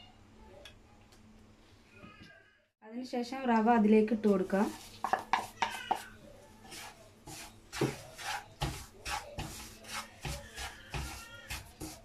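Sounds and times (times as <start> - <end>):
spatula scraping frying pan: 4.5 - 12.0.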